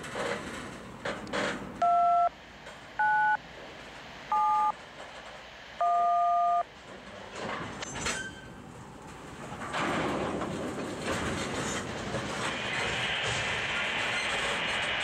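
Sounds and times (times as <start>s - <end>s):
rumble of freight cars: 0.0s - 15.0s
touch-tone dialing beeps: 1.8s - 2.3s, 3.0s - 3.4s, 4.3s - 4.7s, 5.8s - 6.6s.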